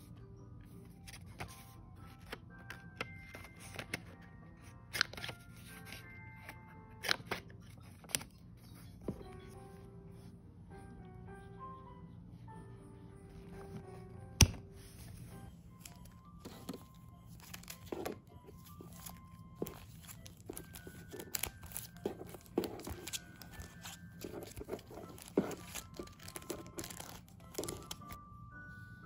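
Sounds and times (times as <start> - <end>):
soft background music: 0.0 - 29.0
sticker sheets crinkling: 15.8 - 28.2.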